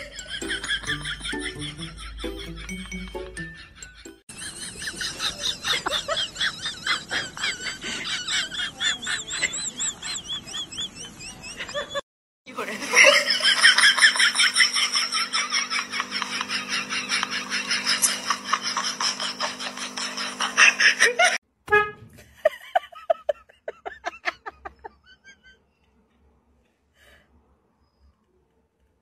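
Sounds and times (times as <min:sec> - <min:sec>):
rapid high-pitched laughter: 0:03.6 - 0:12.0, 0:12.8 - 0:21.4.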